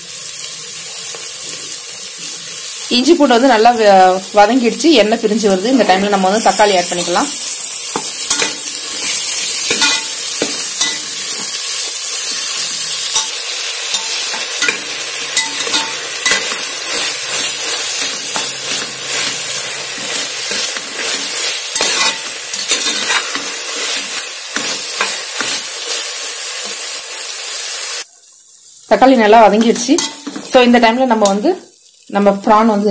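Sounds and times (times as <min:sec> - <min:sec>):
vegetables sizzling in hot oil: 0:00.0 - 0:32.9
metal spatula scraping a pot: 0:07.9 - 0:11.6, 0:15.4 - 0:25.9.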